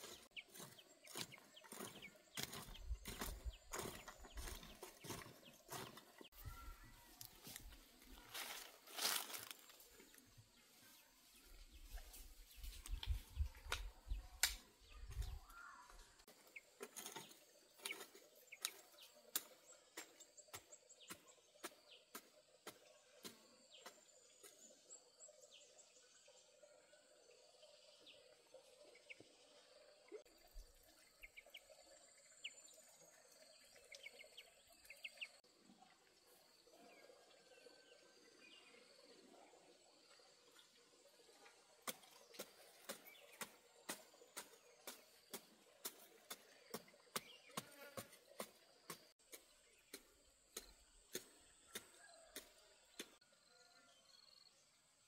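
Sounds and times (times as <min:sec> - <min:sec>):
birds chirping and trilling: 0:00.0 - 0:35.4.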